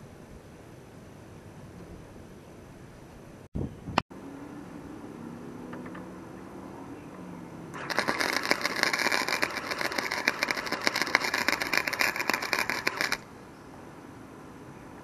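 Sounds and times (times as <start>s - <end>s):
welder arc crackling: 7.8s - 13.2s.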